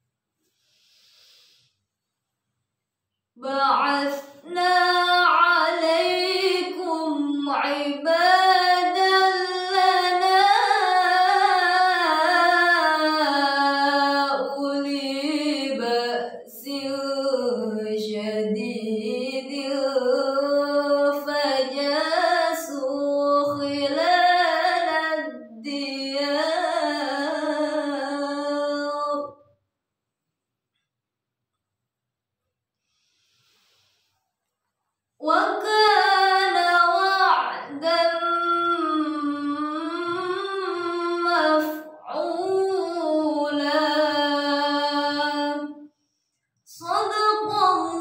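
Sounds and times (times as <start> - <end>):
woman reciting melodically: 3.4 - 29.4, 35.2 - 45.8, 46.7 - 48.0.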